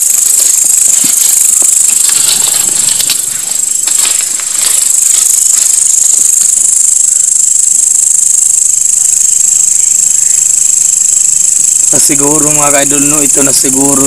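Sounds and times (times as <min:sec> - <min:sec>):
crickets trilling: 0:00.0 - 0:14.0
dry leaves rustling: 0:00.0 - 0:14.0.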